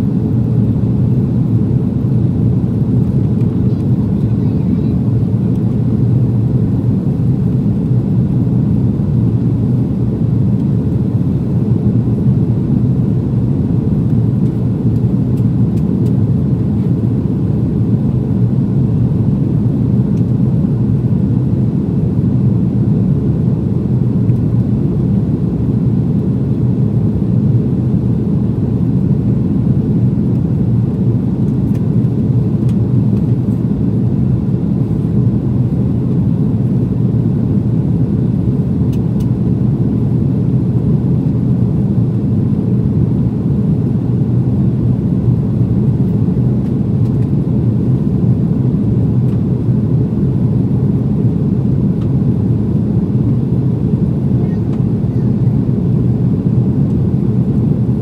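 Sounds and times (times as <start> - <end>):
airliner cabin jet engine rumble: 0.0 - 58.0.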